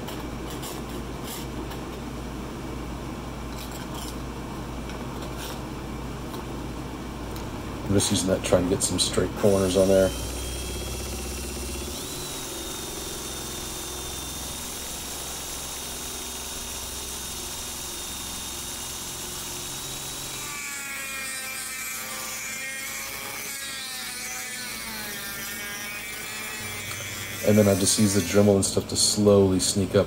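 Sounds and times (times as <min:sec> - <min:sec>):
rotary tool whining: 0:09.4 - 0:28.6.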